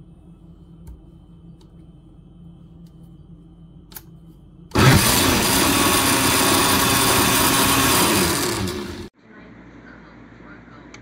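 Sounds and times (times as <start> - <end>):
blender running: 4.7 - 9.1.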